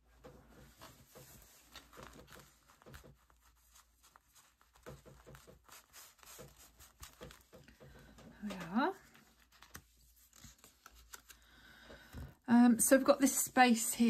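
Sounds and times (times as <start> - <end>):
hands tapping and rustling: 0.0 - 12.4
cloth pressing on paper: 0.2 - 11.4.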